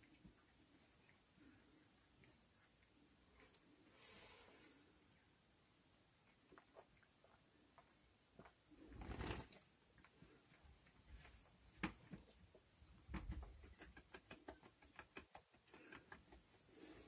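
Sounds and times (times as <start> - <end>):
soft clicks and rustles: 0.0 - 4.0.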